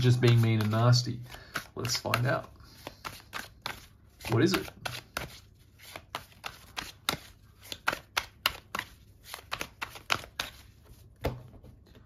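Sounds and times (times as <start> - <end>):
cards being shuffled: 0.0 - 12.0.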